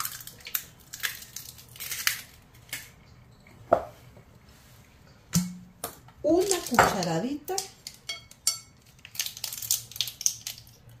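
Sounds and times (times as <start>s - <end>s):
egg shell pulled apart squishing: 8.8s - 11.0s.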